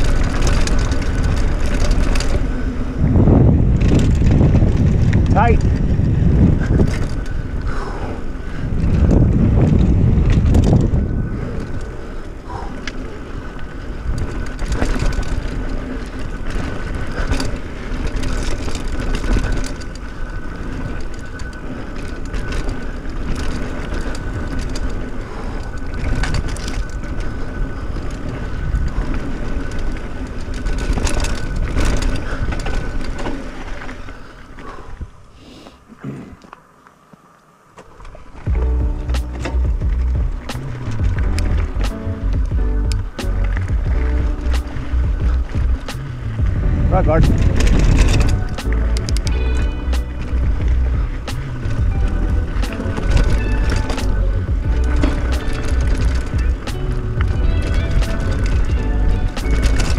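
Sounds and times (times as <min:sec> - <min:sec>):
wind buffeting microphone: 0:00.0 - 0:33.4, 0:38.4 - 0:59.9
bike rattling over bumps: 0:00.0 - 0:35.4, 0:36.5 - 0:59.9
bike tyres crunching over dirt: 0:00.0 - 0:59.9.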